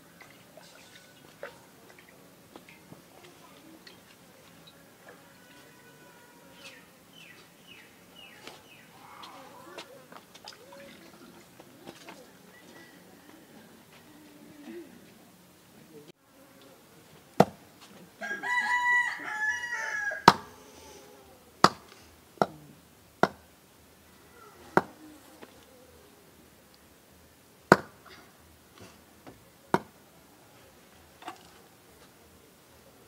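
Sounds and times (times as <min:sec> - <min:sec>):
rooster crowing: 0:18.2 - 0:20.6.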